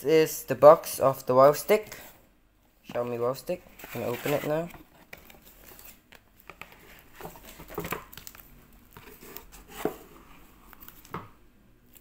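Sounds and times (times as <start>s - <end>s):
cardboard box and packaging rustling: 3.7s - 11.2s.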